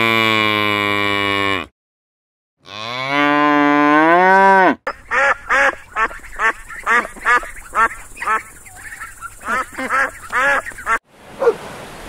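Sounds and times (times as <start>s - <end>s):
cow mooing: 0.0s - 1.7s, 2.6s - 4.8s
ducks quacking: 4.9s - 11.6s.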